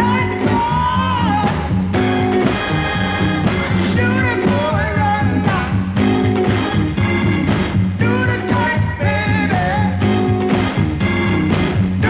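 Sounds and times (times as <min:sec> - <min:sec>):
man singing: 0:00.0 - 0:06.6, 0:08.0 - 0:10.5
soul band music: 0:00.0 - 0:12.0.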